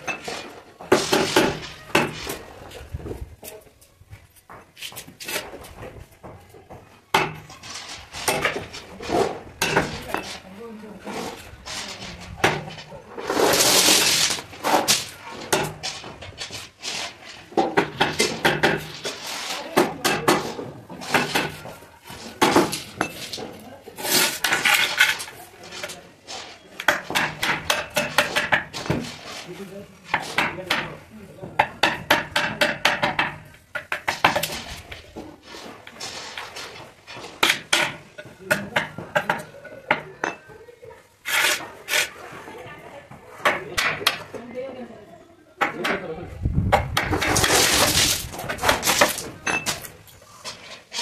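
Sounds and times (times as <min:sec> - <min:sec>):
hammer striking chisel: 0:26.8 - 0:28.8, 0:31.6 - 0:34.5, 0:37.4 - 0:40.1, 0:43.4 - 0:44.3.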